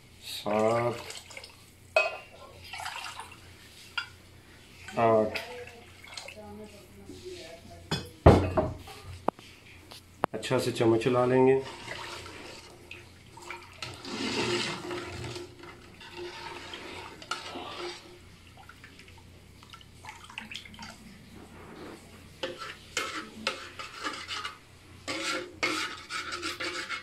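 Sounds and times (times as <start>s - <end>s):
liquid sloshing in a pot: 0.5s - 7.5s, 11.4s - 27.0s
ladle scraping metal pot: 11.5s - 12.8s, 13.4s - 18.3s, 21.4s - 27.0s.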